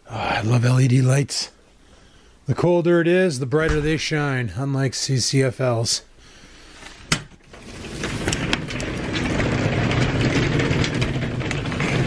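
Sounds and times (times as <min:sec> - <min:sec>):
garage door opener motor rattling: 0:07.4 - 0:12.0.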